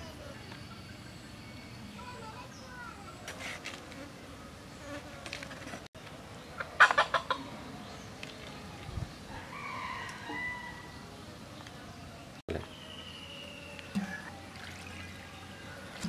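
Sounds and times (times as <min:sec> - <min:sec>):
rooster calling: 0:09.3 - 0:11.0.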